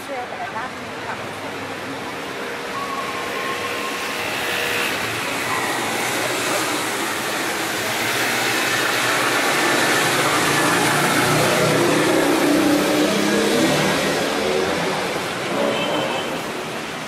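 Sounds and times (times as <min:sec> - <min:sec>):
passing vehicles: 0:00.0 - 0:17.0.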